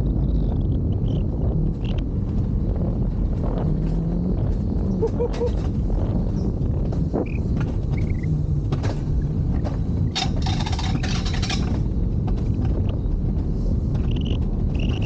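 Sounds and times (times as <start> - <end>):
wheels rumbling on steel rails: 0.0 - 15.0
rattling scrape: 6.9 - 12.8.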